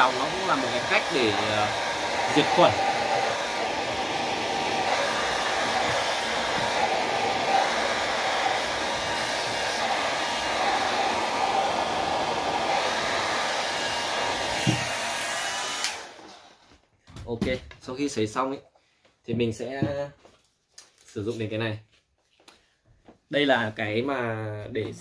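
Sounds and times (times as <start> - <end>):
hair dryer running: 0.0 - 16.7.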